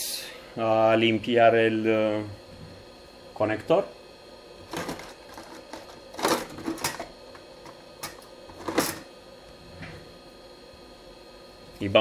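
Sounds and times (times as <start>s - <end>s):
objects scraping and clattering: 4.6s - 9.1s.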